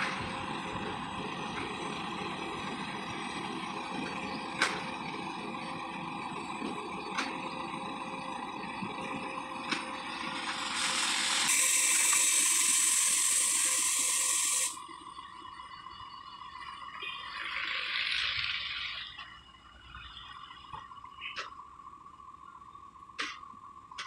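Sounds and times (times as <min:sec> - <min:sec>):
idling trucks humming: 0:00.0 - 0:16.9
loud hiss: 0:10.1 - 0:14.8.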